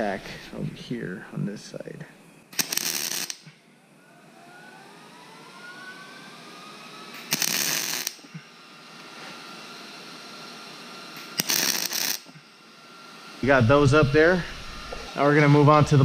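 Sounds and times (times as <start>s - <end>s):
welding arc crackling: 2.5s - 3.5s, 7.1s - 9.3s, 11.1s - 16.0s.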